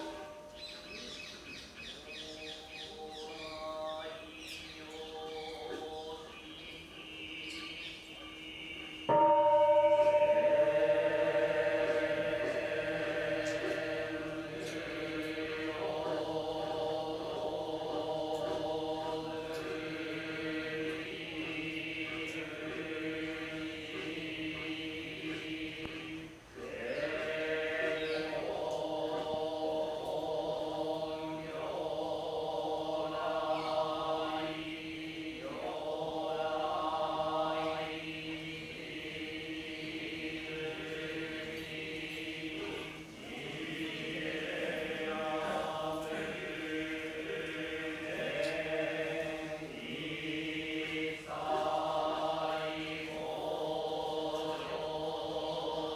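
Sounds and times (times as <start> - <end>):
temple bell ringing: 0.0 - 1.0, 2.6 - 16.4
monks chanting: 0.0 - 55.9.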